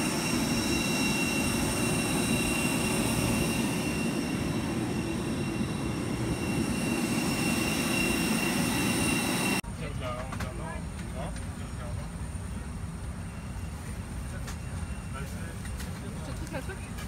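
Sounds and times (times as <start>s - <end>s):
high whining tones: 0.0s - 9.6s
jet engine idling rumble: 0.0s - 17.0s.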